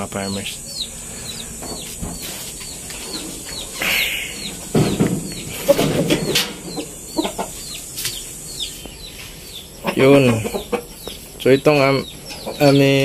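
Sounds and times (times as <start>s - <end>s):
high falling bird chirps: 0.0s - 13.0s
low clucking: 0.5s - 13.0s
sharp knocks: 1.6s - 2.3s, 4.4s - 7.5s.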